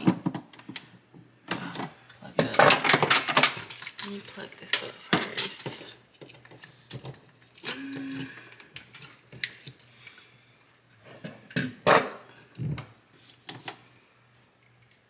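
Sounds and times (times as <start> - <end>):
clicks and knocks of appliance parts: 0.0 - 7.8.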